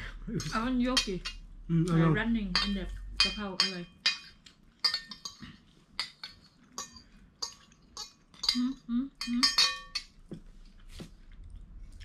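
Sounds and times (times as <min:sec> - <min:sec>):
cutlery clinking on ceramic plates: 0:02.6 - 0:10.2.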